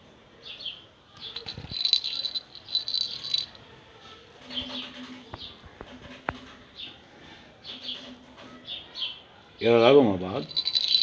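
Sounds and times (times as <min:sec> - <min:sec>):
toy ball rattling and jingling: 0:01.2 - 0:03.6, 0:10.4 - 0:11.0.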